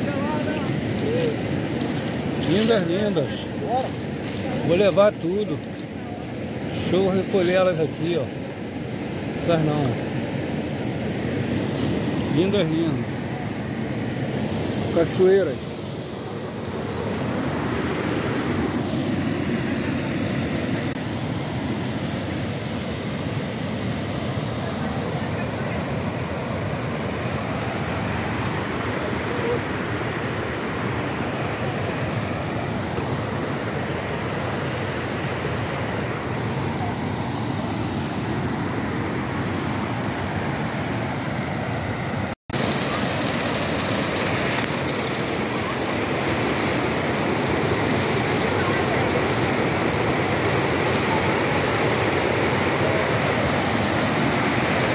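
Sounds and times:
waterfall rushing over rocks: 0.0 - 40.8, 42.5 - 54.9
water pouring onto rock: 42.6 - 45.4.

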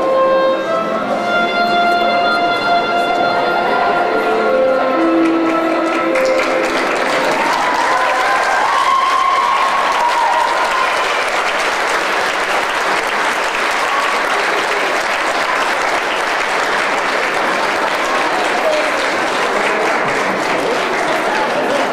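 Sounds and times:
soprano saxophone note: 0.0 - 6.7
audience applauding: 4.8 - 21.9.

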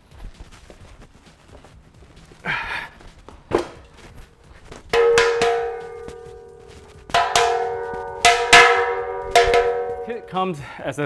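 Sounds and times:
metal striking metal ringing: 5.0 - 10.6.

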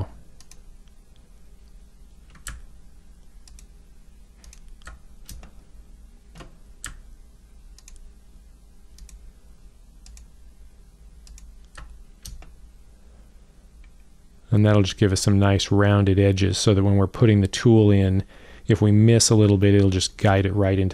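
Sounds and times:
low steady hum: 0.0 - 20.9
computer mouse clicking: 0.4 - 1.0, 2.3 - 2.7, 3.4 - 3.7, 4.4 - 5.5, 6.4 - 7.0, 7.7 - 8.1, 9.0 - 9.2, 10.0 - 10.3, 11.2 - 12.6.

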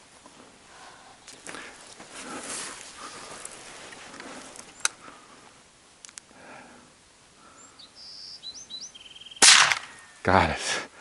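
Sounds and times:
soft footsteps on sand: 0.0 - 4.8
rustling: 0.0 - 6.3.

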